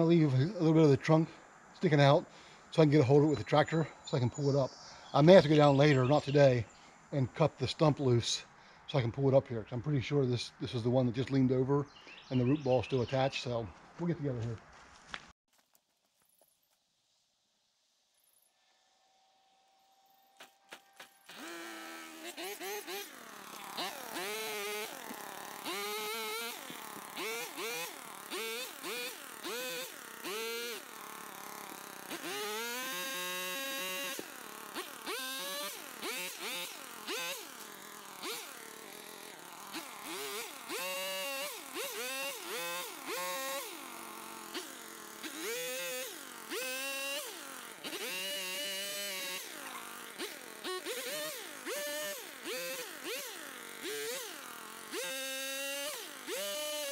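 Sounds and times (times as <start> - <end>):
gas pole saw revving: 19.5 - 56.9.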